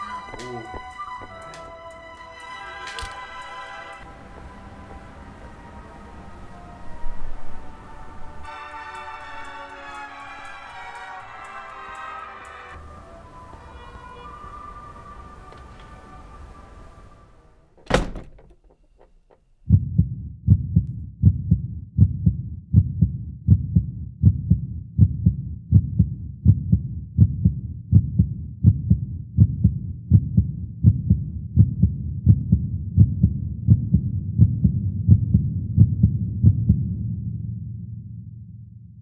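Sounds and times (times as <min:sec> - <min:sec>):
steady low thudding: 0:19.6 - 0:37.7.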